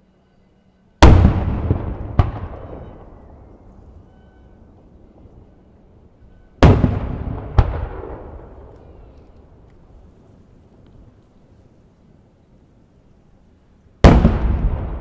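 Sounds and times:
rumbling echo: 1.0 - 10.8, 14.0 - 15.0.

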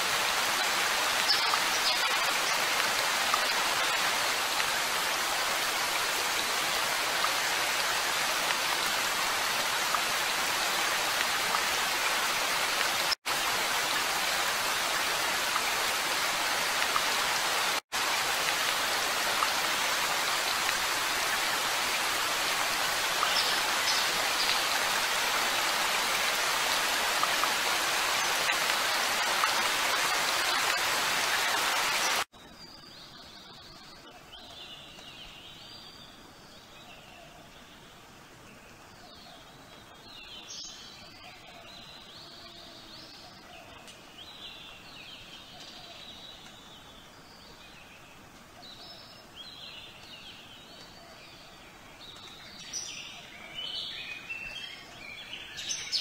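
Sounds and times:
rain hissing: 0.0 - 32.3.

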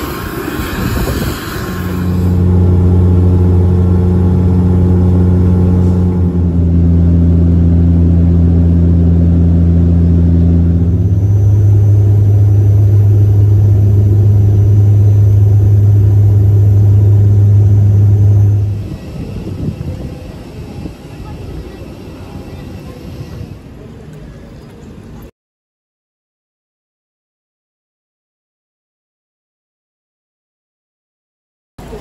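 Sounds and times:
propellers droning: 0.0 - 25.2.

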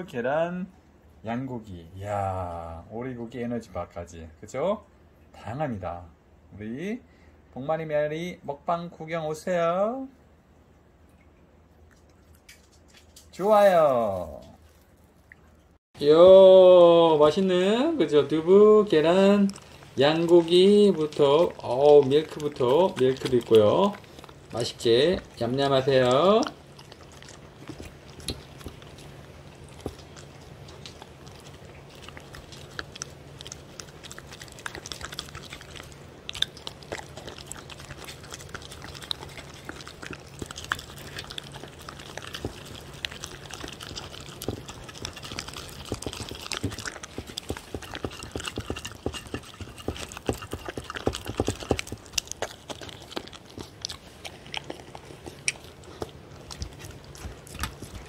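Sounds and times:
faint steady hum: 0.0 - 58.0
dog chewing wet food: 11.6 - 58.0.

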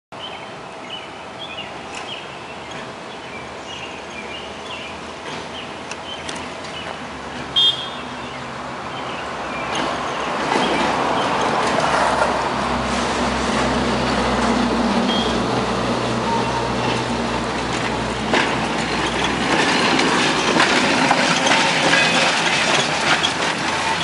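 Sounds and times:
birds chirping: 0.2 - 7.0, 7.6 - 11.4
streetcar running on track: 0.2 - 24.0
loud high-pitched tone: 15.1 - 15.4.

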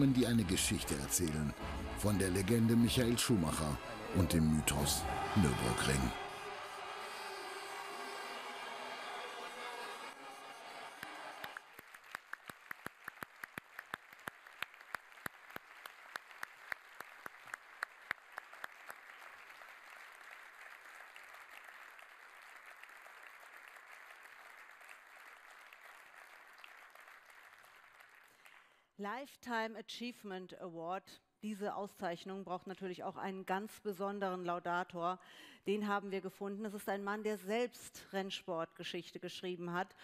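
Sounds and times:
audience applauding: 0.0 - 28.7.

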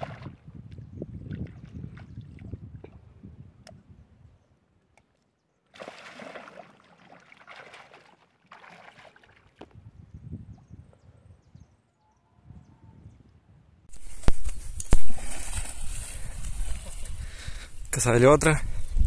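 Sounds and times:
fish splashing in shallow water: 0.0 - 0.4, 5.7 - 9.7, 14.0 - 17.2.

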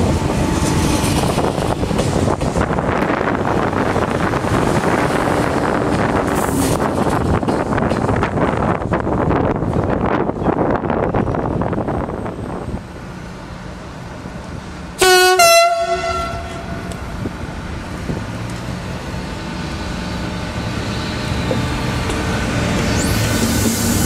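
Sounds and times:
train horn two-note blast: 15.0 - 17.1.

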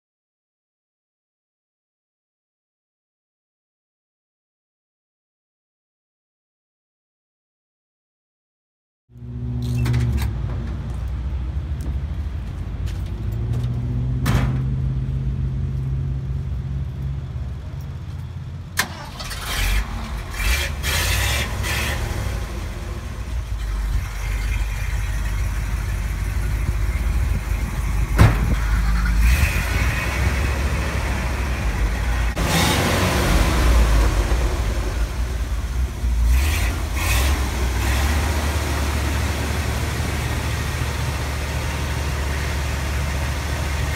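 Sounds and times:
truck engine idling: 16.3 - 43.9.

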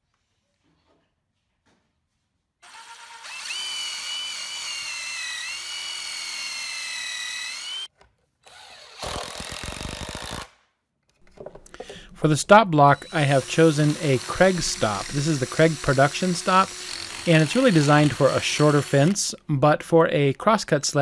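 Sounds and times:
impact driver whining: 2.6 - 7.9, 8.5 - 10.5, 12.9 - 19.4.

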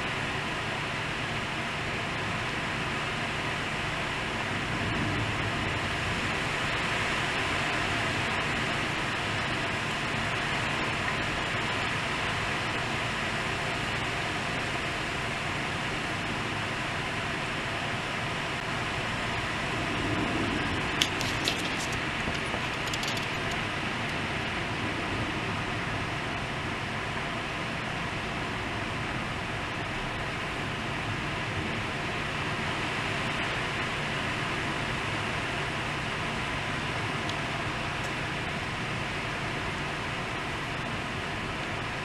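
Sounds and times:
heavy rain pouring: 0.0 - 42.0
sharp clicks: 21.0 - 23.6.

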